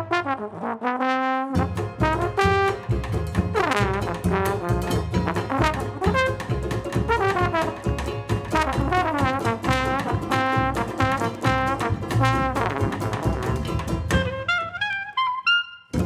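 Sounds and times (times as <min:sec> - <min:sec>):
jazz band playing: 0:00.0 - 0:16.0
trombone sliding smears: 0:03.5 - 0:06.5, 0:08.5 - 0:15.4.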